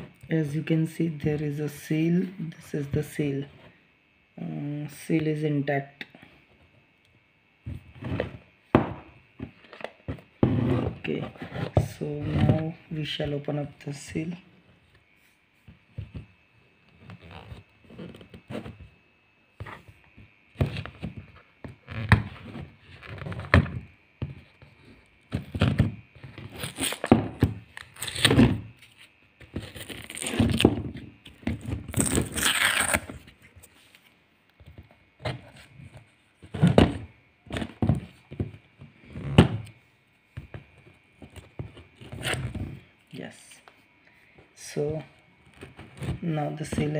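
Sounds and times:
paper stickers peeling and tearing: 24.8 - 30.7, 31.3 - 33.4
paper ripping: 25.6 - 30.8, 31.6 - 33.8.

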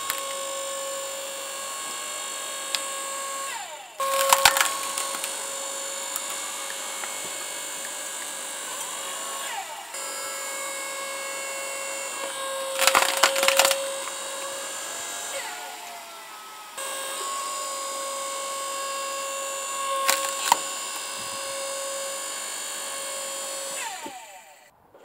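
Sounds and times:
log splitter motor humming: 0.0 - 24.7
wood cracking and splintering: 4.0 - 9.6, 12.2 - 16.0, 19.8 - 21.5.

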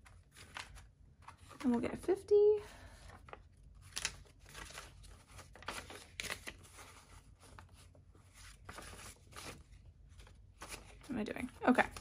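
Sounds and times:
paper bills rustling: 3.0 - 12.0.

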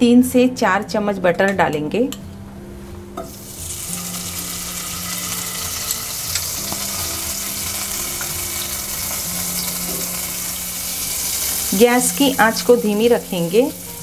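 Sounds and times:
butter sizzling in pan: 3.3 - 14.0.

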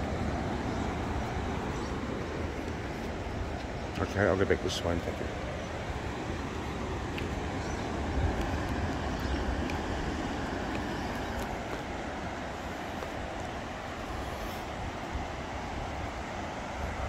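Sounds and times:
ocean surf breaking: 0.0 - 17.0
wind on microphone: 5.5 - 17.0.

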